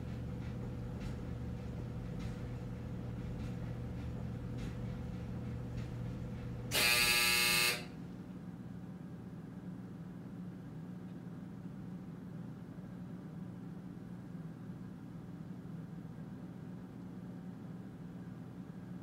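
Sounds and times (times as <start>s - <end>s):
clothes dryer buzzer: 0.0s - 1.2s, 4.6s - 8.1s
low hum of dryer: 0.0s - 19.0s.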